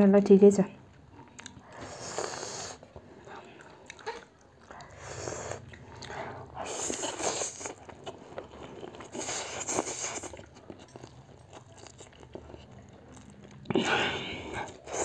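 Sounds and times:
quiet chewing: 0:00.9 - 0:15.0
loud noodle slurps: 0:01.8 - 0:02.8.

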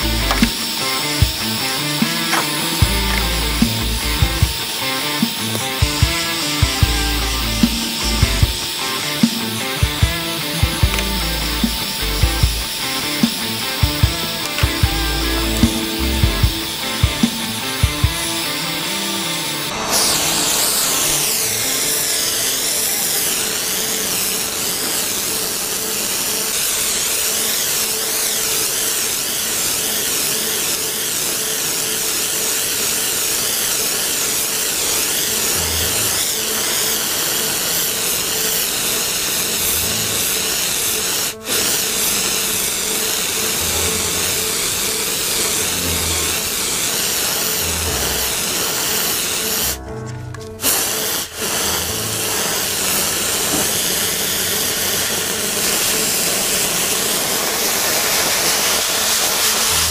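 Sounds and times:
background music: 0:00.0 - 0:23.4, 0:39.5 - 0:53.6
compressed air spray hissing: 0:00.0 - 0:49.8, 0:50.5 - 0:59.9.

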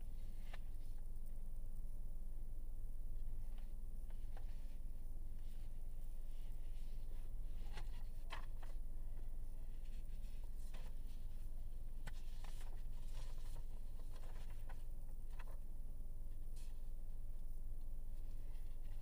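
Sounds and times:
faint clicks and rustles: 0:03.2 - 0:17.0.

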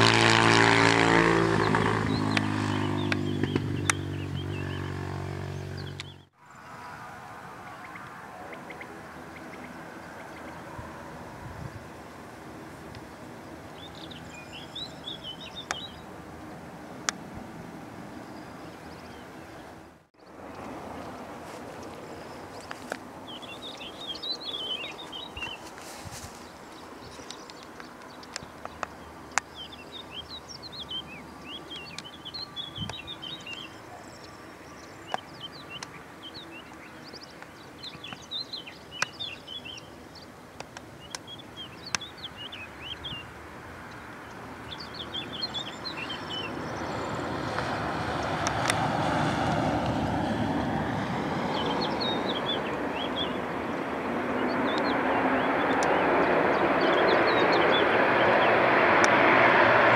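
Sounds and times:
turboprop aircraft engine rush: 0:00.0 - 0:06.2, 0:43.9 - 0:59.9
small birds chirping: 0:01.2 - 0:06.9, 0:12.9 - 0:16.6, 0:18.1 - 0:59.2.

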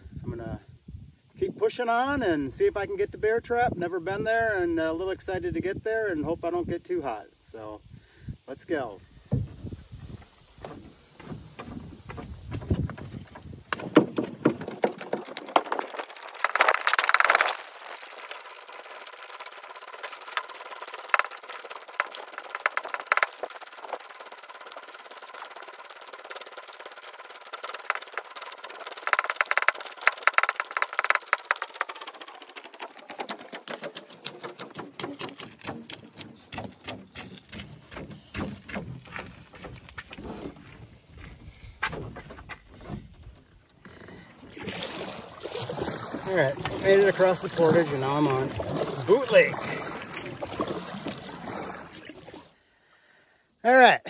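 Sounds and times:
footsteps with rattling gear: 0:27.7 - 0:41.7.

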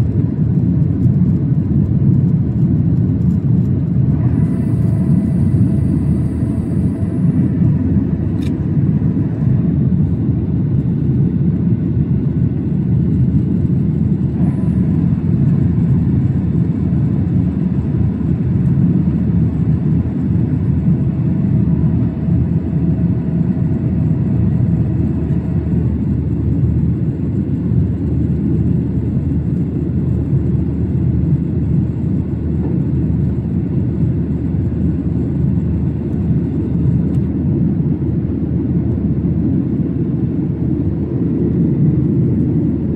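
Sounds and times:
airliner cabin engine drone: 0:00.0 - 0:42.9.

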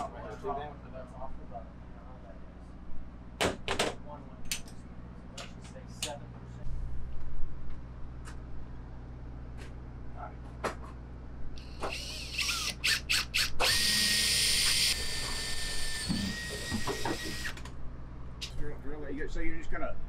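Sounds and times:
power drill whining: 0:11.6 - 0:17.7.

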